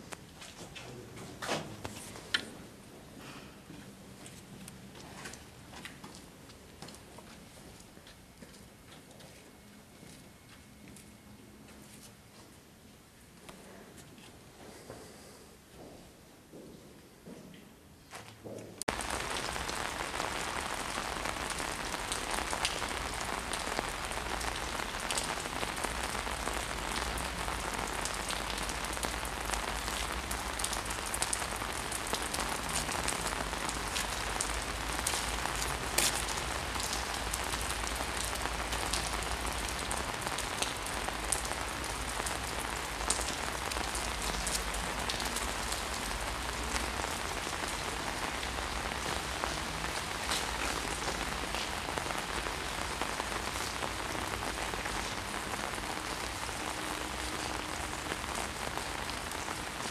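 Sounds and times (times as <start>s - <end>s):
rain on wet pavement: 18.8s - 59.9s.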